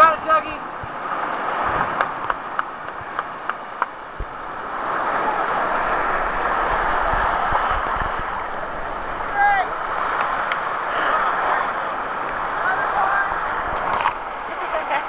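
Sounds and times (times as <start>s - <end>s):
surf washing over cobbles: 0.0s - 15.0s.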